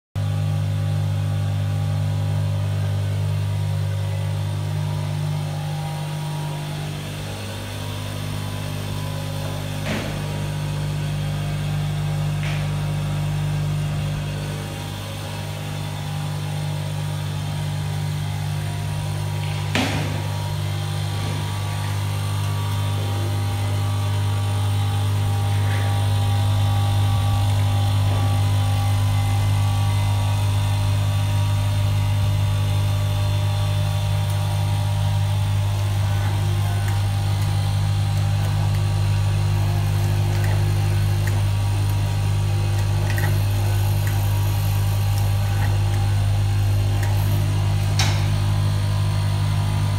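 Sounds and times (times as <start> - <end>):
machine humming: 0.2 - 49.9.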